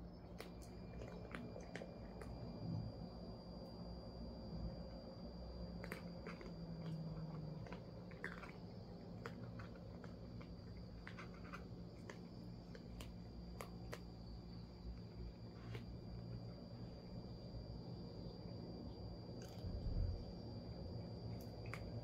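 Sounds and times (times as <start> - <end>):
cats chewing food: 0.0 - 22.0.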